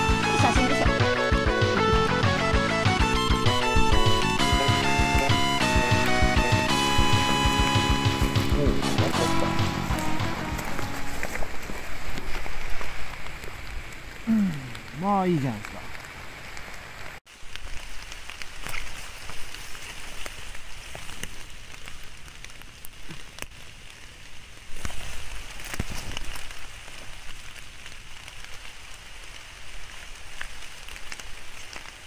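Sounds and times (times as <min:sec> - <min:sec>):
heavy rain on leaves: 0:00.0 - 0:32.0
raindrops hitting near microphone: 0:00.0 - 0:32.0.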